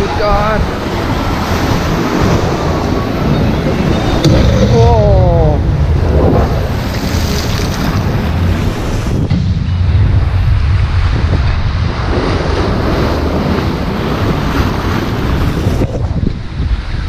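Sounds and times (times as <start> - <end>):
white water rushing: 0.0 - 9.2
wind buffeting microphone: 0.0 - 17.0.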